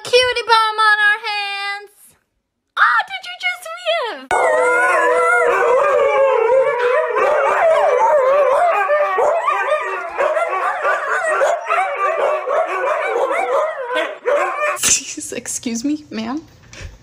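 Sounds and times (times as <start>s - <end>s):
dogs howling: 4.3s - 14.8s.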